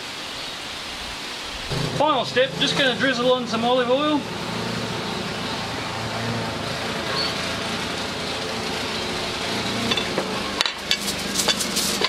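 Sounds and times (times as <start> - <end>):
glass bottle and utensils on table: 9.9 - 12.0.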